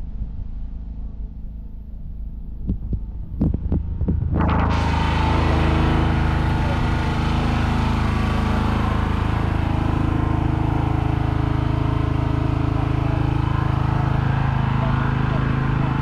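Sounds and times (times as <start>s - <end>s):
engine idling: 2.4s - 16.0s.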